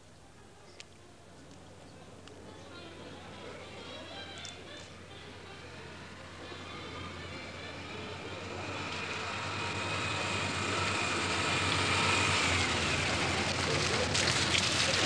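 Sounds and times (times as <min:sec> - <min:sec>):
faint whining tone: 0:00.0 - 0:15.0
car approaching on wet road: 0:05.5 - 0:15.0.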